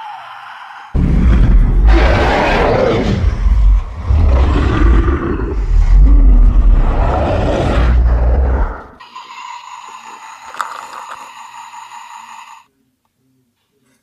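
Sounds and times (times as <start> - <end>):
growling dinosaur roar: 0.9 - 9.0.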